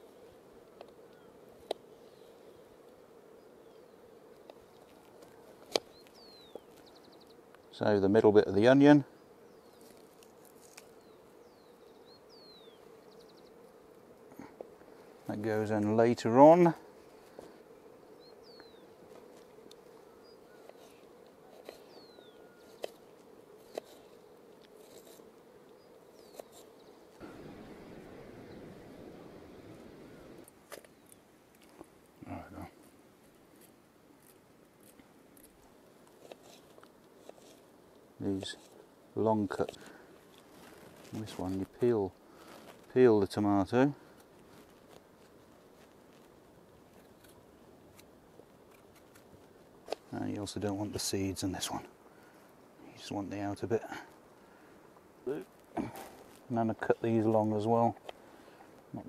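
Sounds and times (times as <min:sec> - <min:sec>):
insect hum: 0:00.0 - 0:59.0
faint bird chirps: 0:05.8 - 0:07.9, 0:10.9 - 0:13.6, 0:18.1 - 0:19.0, 0:20.0 - 0:23.0.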